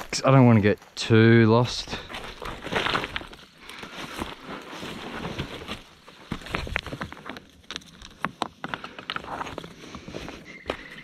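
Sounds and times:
footsteps on loose rocks: 0:00.0 - 0:11.0
stone clicks underfoot: 0:05.4 - 0:09.9.

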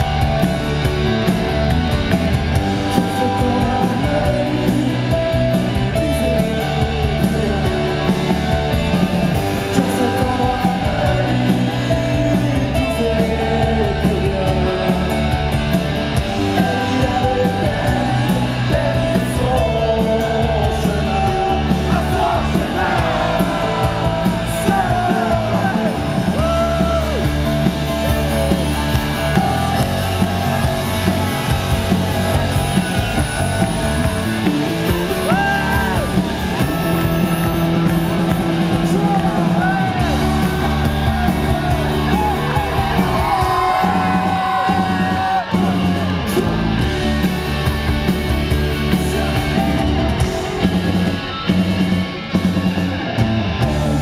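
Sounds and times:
live rock band playing: 0:00.0 - 0:54.0
man singing: 0:02.8 - 0:15.6, 0:16.3 - 0:27.2, 0:29.2 - 0:46.6, 0:48.8 - 0:50.5, 0:53.6 - 0:54.0.

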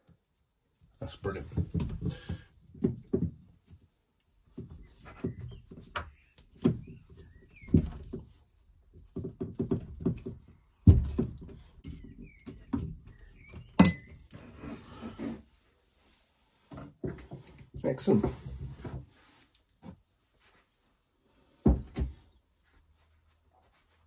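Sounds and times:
hose rubbing and scraping: 0:14.2 - 0:16.7.

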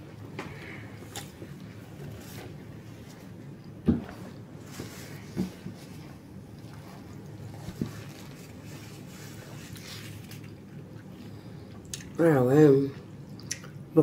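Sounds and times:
person chewing: 0:09.0 - 0:12.2, 0:13.3 - 0:13.8.

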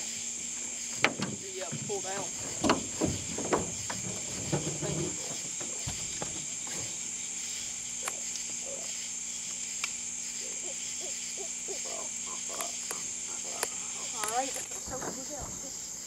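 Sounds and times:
frogs croaking: 0:00.0 - 0:16.0
insects buzzing: 0:00.0 - 0:16.0.

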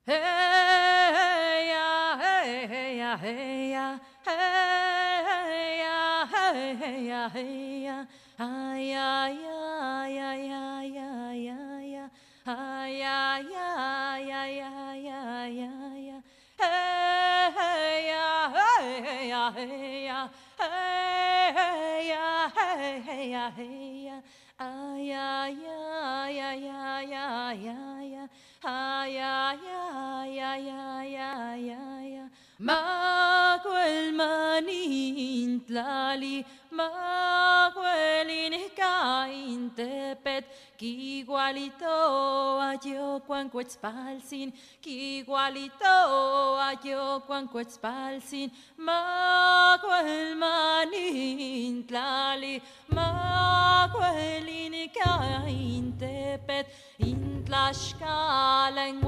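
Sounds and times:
woman singing unaccompanied: 0:00.0 - 0:59.0
singer breathing: 0:08.1 - 0:08.4, 0:12.1 - 0:12.5, 0:16.2 - 0:16.6, 0:20.3 - 0:20.6, 0:24.2 - 0:24.6, 0:28.3 - 0:28.7, 0:32.3 - 0:32.6, 0:40.5 - 0:40.8, 0:44.5 - 0:44.8, 0:48.5 - 0:48.8, 0:52.6 - 0:52.9, 0:56.6 - 0:57.0.

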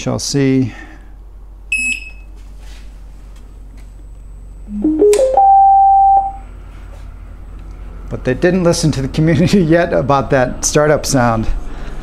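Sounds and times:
electronic startup tune: 0:04.7 - 0:06.4
short electronic beep: 0:04.7 - 0:06.4.

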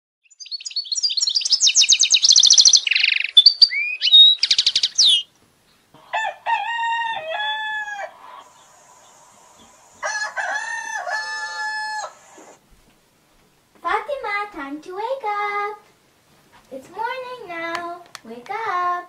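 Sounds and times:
small birds chirping: 0:00.2 - 0:06.1, 0:08.1 - 0:10.1
rooster crowing: 0:06.0 - 0:12.6.

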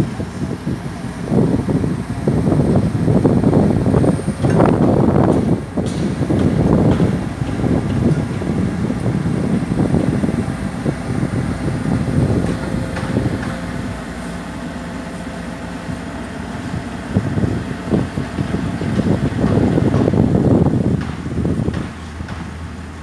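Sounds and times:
excavator diesel engine running: 0:00.0 - 0:23.0
sharp knocks: 0:20.9 - 0:22.5.

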